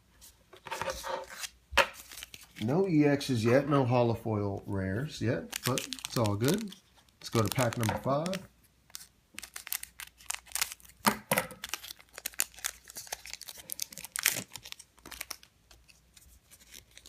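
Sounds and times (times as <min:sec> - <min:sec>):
foil wrapper crinkling and tearing: 0:01.3 - 0:02.8, 0:05.4 - 0:17.0.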